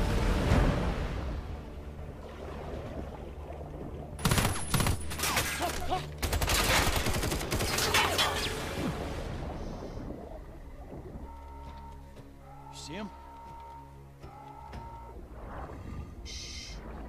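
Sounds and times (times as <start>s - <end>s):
rapid automatic gunfire: 6.2s - 7.8s
low steady drone: 8.2s - 17.0s.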